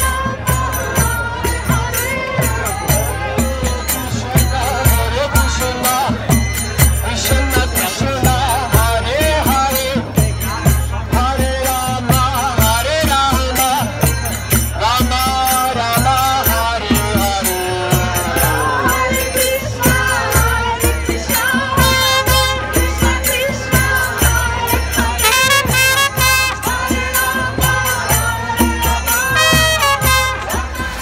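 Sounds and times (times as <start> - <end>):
barrel drum beat: 0.0 - 31.0
harmonium drone: 14.1 - 31.0
voices chanting: 16.2 - 31.0.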